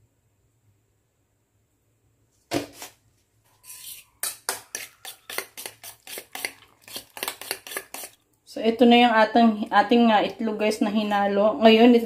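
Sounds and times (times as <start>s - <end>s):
fork beating eggs in metal bowl: 3.6s - 8.2s.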